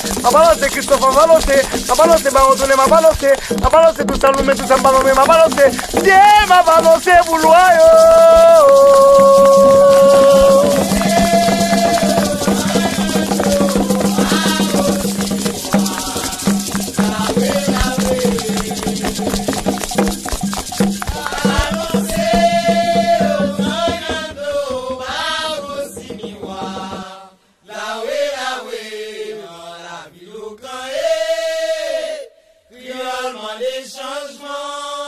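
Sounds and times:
shaken rattle: 0:00.0 - 0:27.0
people chanting: 0:05.8 - 0:19.8, 0:21.1 - 0:35.0.

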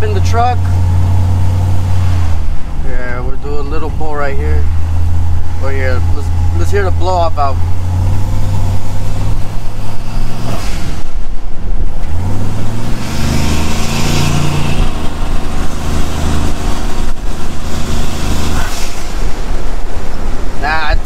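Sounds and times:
truck engine under full throttle: 0:00.0 - 0:21.0
blow-off valve whoosh: 0:09.5 - 0:16.6, 0:17.8 - 0:20.0.

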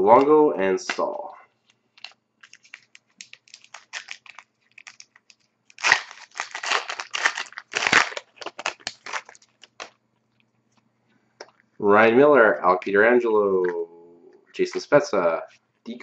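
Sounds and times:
wrapper tearing and crinkling: 0:00.9 - 0:10.0.

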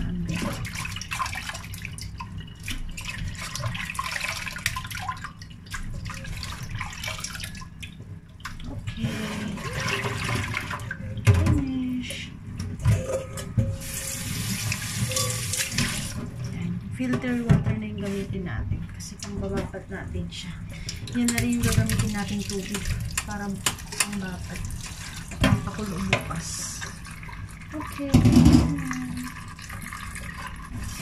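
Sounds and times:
water splashing in sink: 0:00.0 - 0:31.0
steel bowl clattering against sink: 0:12.7 - 0:16.3, 0:20.9 - 0:30.9
tap running hard: 0:28.0 - 0:29.2.

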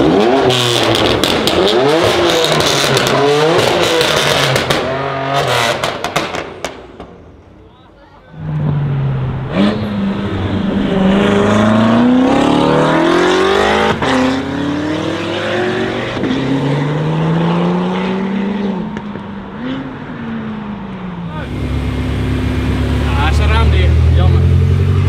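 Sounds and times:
car accelerating through gears: 0:08.4 - 0:20.6.

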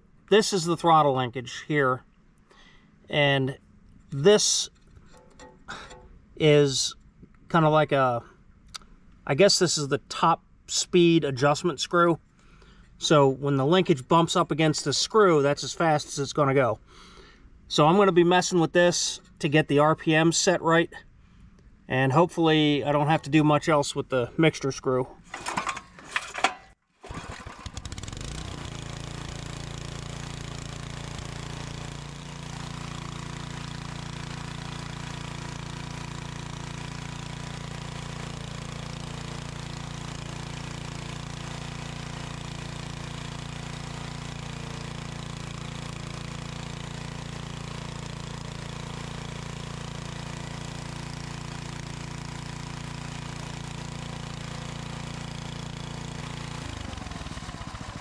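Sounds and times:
engine pull-started: 0:25.2 - 0:58.0
single-cylinder engine running: 0:25.3 - 0:58.0.

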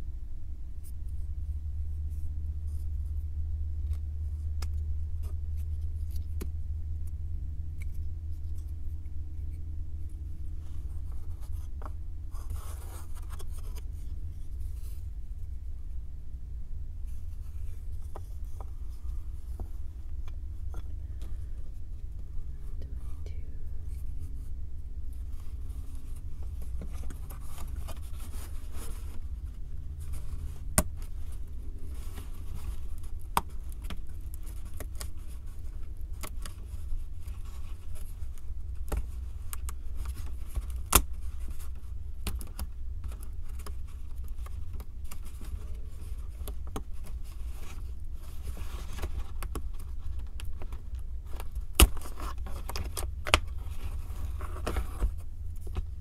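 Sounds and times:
steady low rumble: 0:00.0 - 0:56.0
puzzle pieces scraping and rustling: 0:17.1 - 0:56.0.

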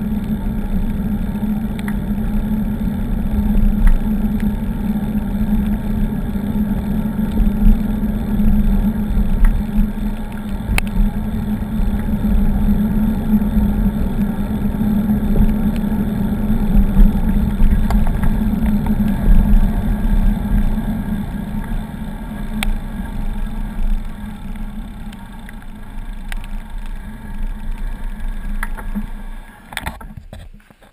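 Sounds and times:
wind on microphone: 0:02.2 - 0:25.0.

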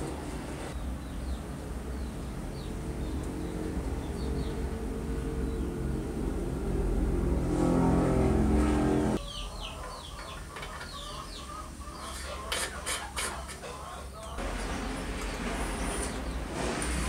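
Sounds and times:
birds chirping: 0:00.7 - 0:06.1, 0:09.1 - 0:16.6.

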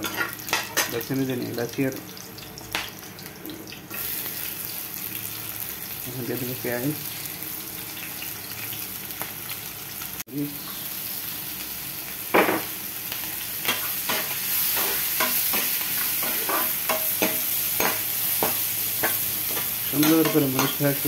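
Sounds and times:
onions frying in hot oil: 0:00.0 - 0:21.0
metal spoon scraping wok: 0:13.7 - 0:20.8.

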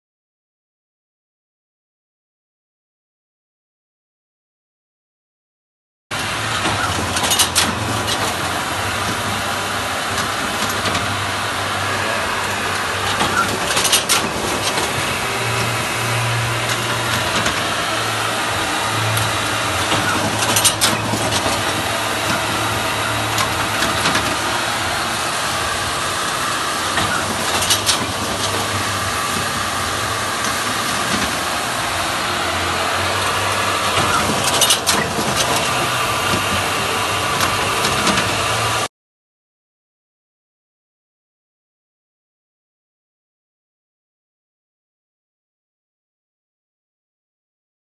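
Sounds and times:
machine hum and whirr: 0:06.1 - 0:38.9.

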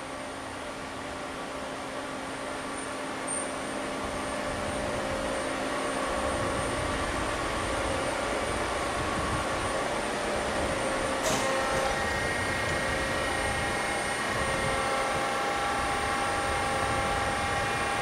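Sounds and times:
machine humming: 0:03.8 - 0:18.0.

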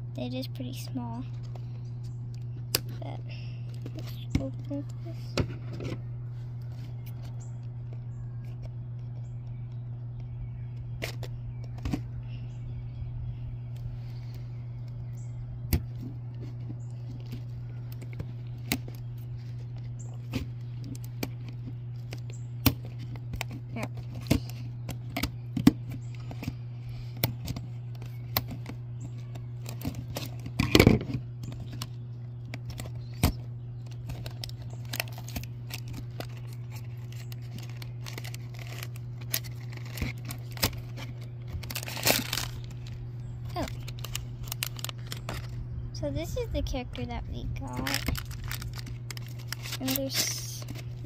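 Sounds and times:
low hum: 0:00.0 - 0:51.0
cardboard tearing: 0:32.5 - 0:45.5, 0:47.7 - 0:51.0
paper bag crinkling: 0:33.8 - 0:45.6, 0:47.6 - 0:51.0.

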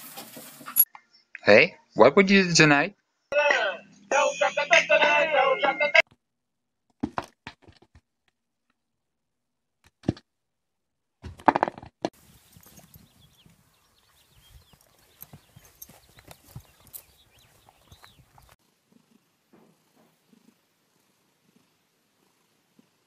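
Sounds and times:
hoof thuds in snow: 0:12.2 - 0:18.6.

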